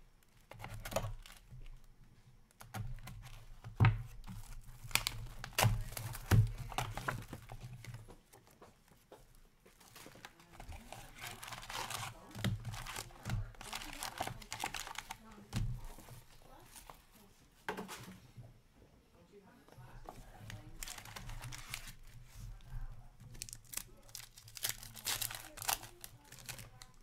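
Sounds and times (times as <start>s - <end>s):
wrapping tearing and crinkling: 0.2s - 1.8s, 3.0s - 8.0s, 9.7s - 17.0s, 20.4s - 27.0s.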